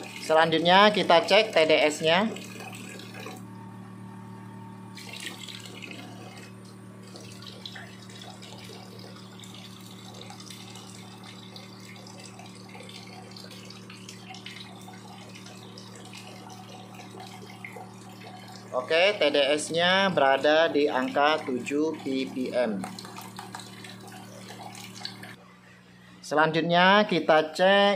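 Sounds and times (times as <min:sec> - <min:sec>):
steady low hum: 0:00.0 - 0:27.9
water trickling into plastic cup: 0:05.0 - 0:19.2, 0:20.7 - 0:25.4.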